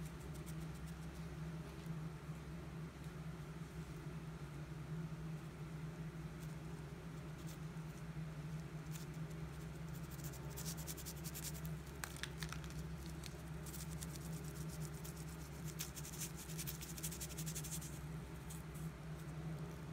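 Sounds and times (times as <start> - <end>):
steady low hum: 0.0 - 19.9
plastic crackling and clicking: 12.0 - 13.4.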